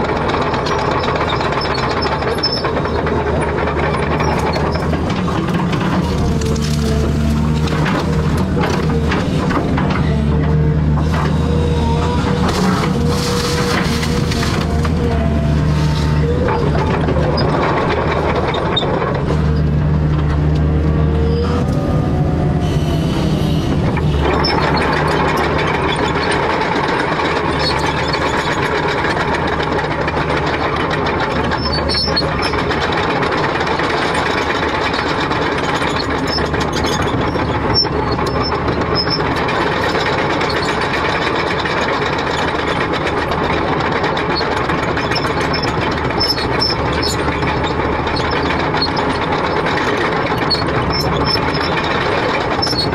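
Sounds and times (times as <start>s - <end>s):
excavator diesel engine: 0.0s - 52.9s
steady grinding noise: 0.0s - 52.9s
high squeaks: 44.4s - 52.9s.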